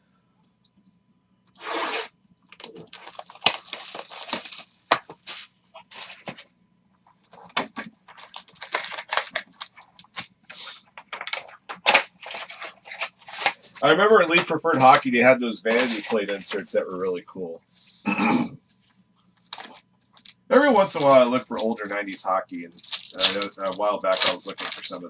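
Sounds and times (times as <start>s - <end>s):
plastic wrap and foil tearing: 1.6s - 6.3s, 7.3s - 15.1s, 15.7s - 16.6s, 19.4s - 25.0s.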